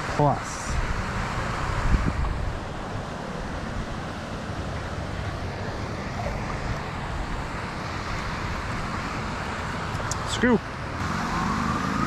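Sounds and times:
wind noise on microphone: 0.7 - 3.1.

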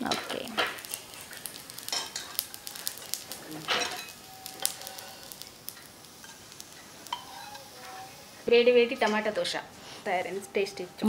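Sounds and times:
light sizzling: 0.0 - 11.0
metal spatula scraping pan: 7.1 - 8.1.

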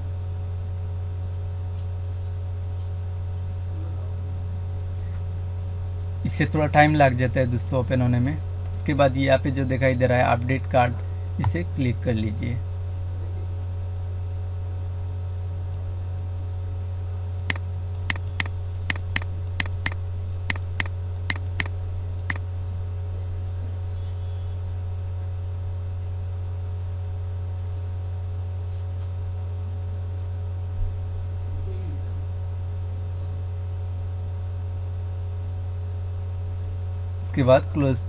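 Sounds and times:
electrical mains hum: 0.0 - 38.0
sharp clicks: 17.4 - 22.4.

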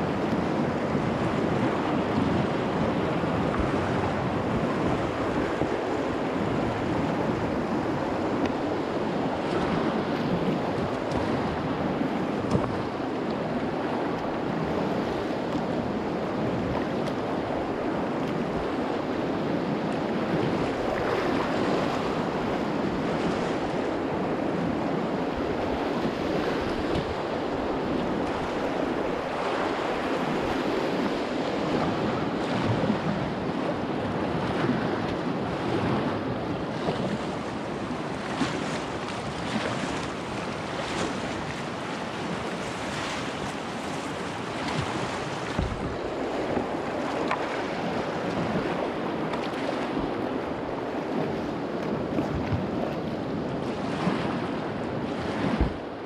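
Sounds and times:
wind buffeting microphone: 0.0 - 56.0
whitewater rushing: 25.2 - 34.2, 36.1 - 50.8.

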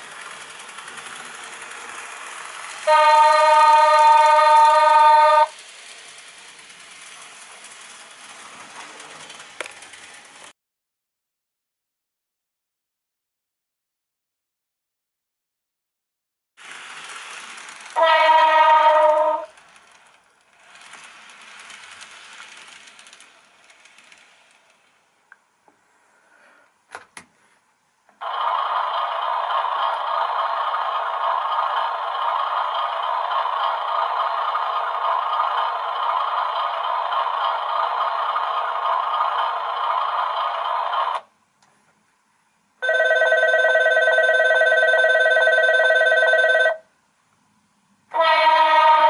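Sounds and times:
electric bell ringing: 42.8 - 46.8.

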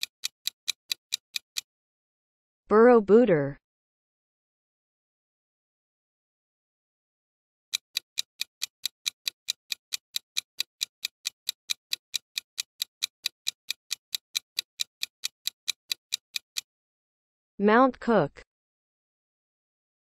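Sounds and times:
clock ticking fast: 0.0 - 1.7, 7.7 - 16.7.

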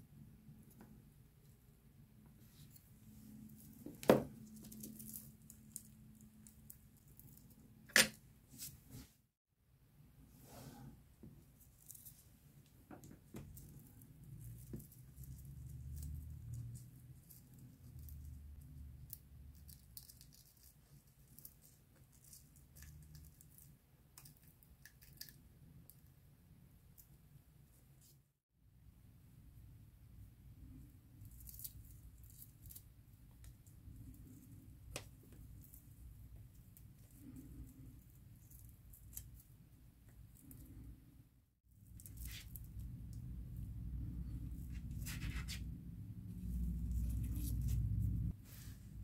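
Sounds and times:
low steady hum: 41.8 - 49.0.

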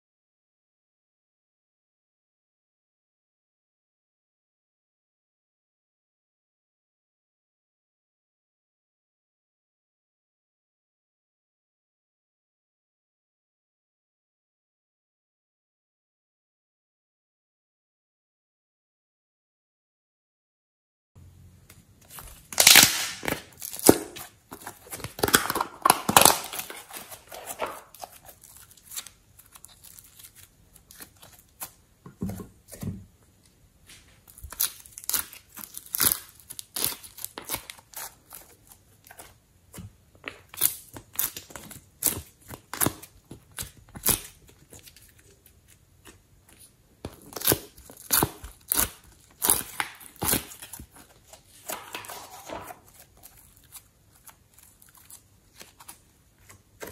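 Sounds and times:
hands squeezing sticky slime: 34.3 - 39.3, 47.2 - 51.9.

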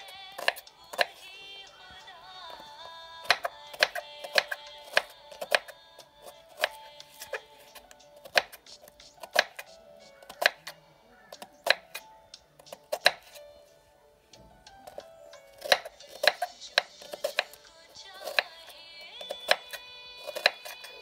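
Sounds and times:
background music: 0.0 - 21.0
knife chopping onions on board: 0.3 - 1.2, 3.2 - 13.4, 14.8 - 18.6, 19.2 - 21.0.

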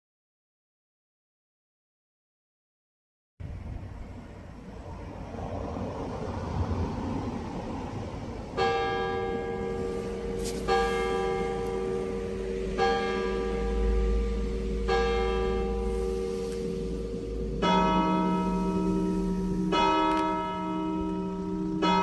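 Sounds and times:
church clock bell striking: 8.0 - 22.0.

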